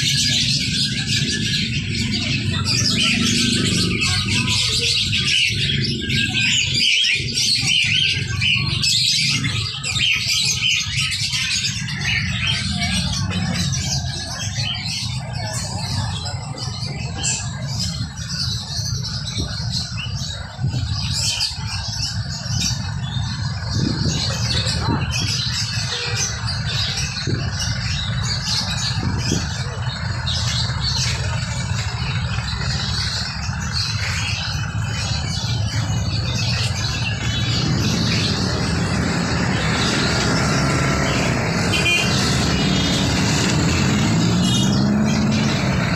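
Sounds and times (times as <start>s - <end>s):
caged songbirds chirping: 0.0s - 45.9s
low rumble of street traffic: 0.0s - 45.9s.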